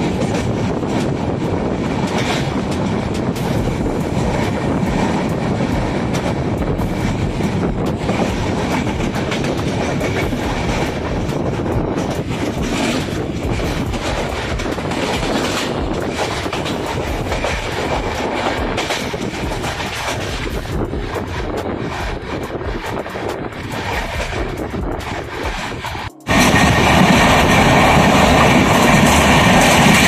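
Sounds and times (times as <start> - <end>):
train rumbling: 0.0 - 30.0
wheels clicking over rail joints: 0.0 - 30.0.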